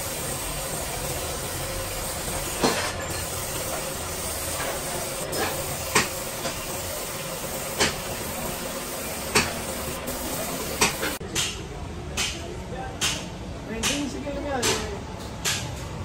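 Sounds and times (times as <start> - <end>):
paint spray gun hissing: 0.0 - 11.2
spray gun spurts: 0.0 - 11.2.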